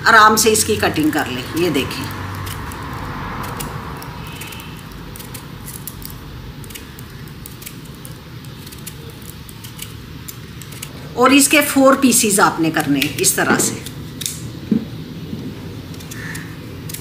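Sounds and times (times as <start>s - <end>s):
vegetable peeler scraping: 1.4s - 11.5s.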